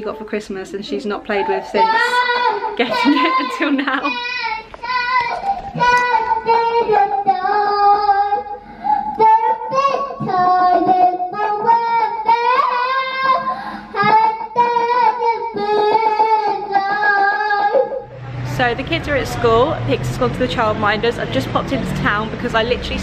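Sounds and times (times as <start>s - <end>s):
girl singing into microphone: 1.7s - 18.1s.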